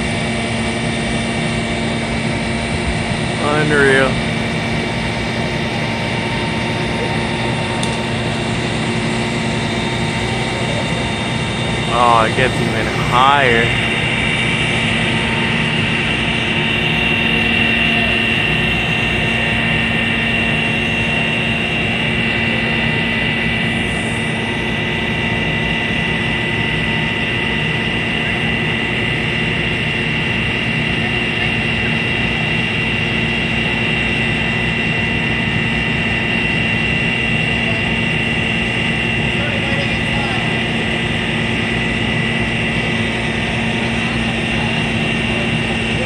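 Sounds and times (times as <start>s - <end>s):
crane engine drone: 0.0s - 46.0s
hydraulic high whine: 0.0s - 46.0s.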